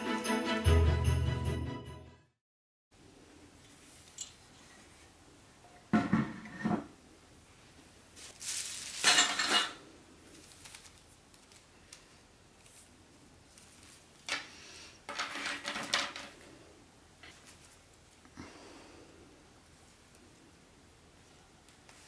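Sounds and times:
objects handled on hard surface: 5.7s - 7.0s, 8.2s - 9.8s, 13.8s - 16.6s
clattering knock: 5.9s - 6.8s.

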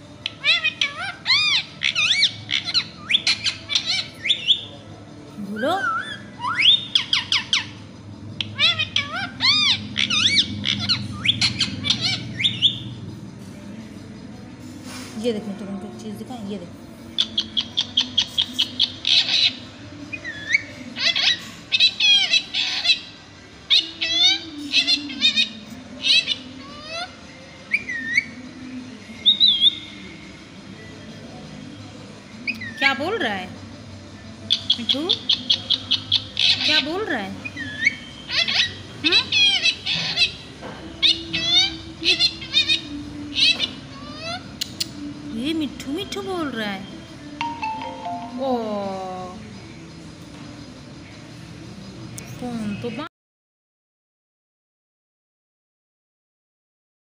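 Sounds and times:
parakeet chirping and squawking: 0.0s - 4.8s, 5.4s - 13.0s, 17.0s - 27.2s, 34.4s - 44.9s.

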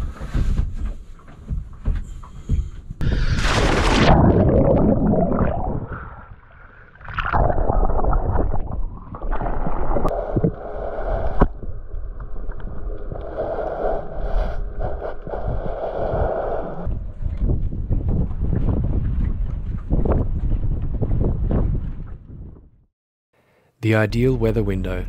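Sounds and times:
underwater gurgling bubbles: 3.8s - 15.5s.

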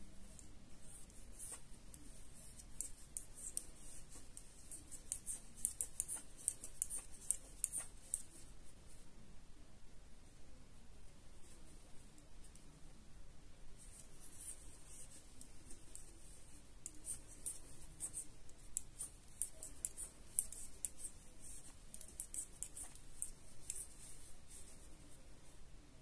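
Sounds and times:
knitting needles ticking: 0.3s - 8.4s, 14.4s - 24.1s.

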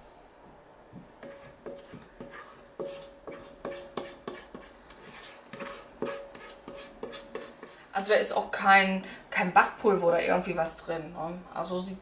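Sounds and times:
spatula scraping metal bowl: 1.2s - 7.9s.

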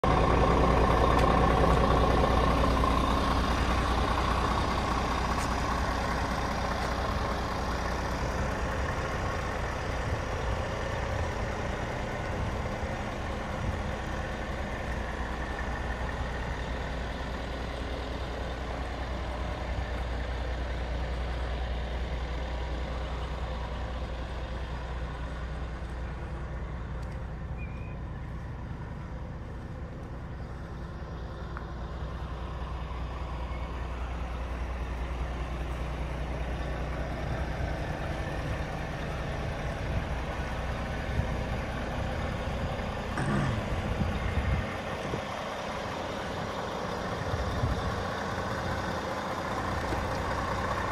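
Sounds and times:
diesel truck engine rumbling: 0.0s - 50.9s.

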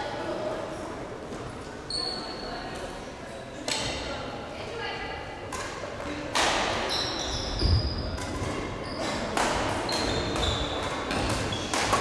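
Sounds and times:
shoes squeaking on court: 1.4s - 2.6s, 6.9s - 12.0s
racket striking shuttlecock: 5.5s - 6.8s, 9.3s - 12.0s.

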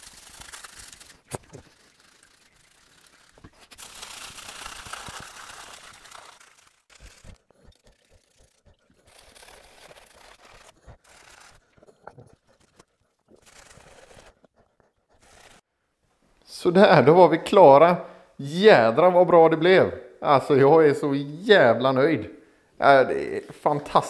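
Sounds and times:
brush scrubbing metal: 0.0s - 15.6s.

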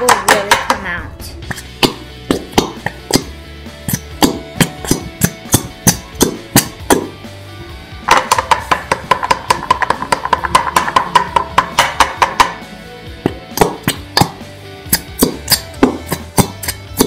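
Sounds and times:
music: 0.0s - 17.0s
plastic bottle knocking on bowl: 8.1s - 12.6s.

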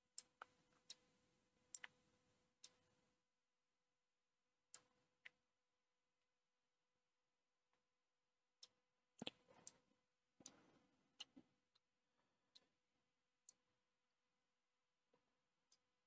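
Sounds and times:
mouse and keyboard clicking: 1.7s - 2.0s.

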